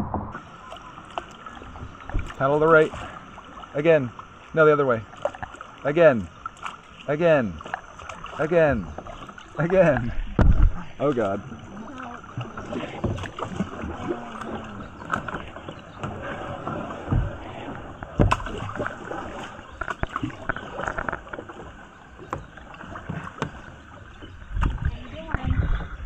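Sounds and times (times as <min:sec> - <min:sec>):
paddle splashing in water: 0:00.0 - 0:26.0
sharp knocks: 0:18.0 - 0:18.6.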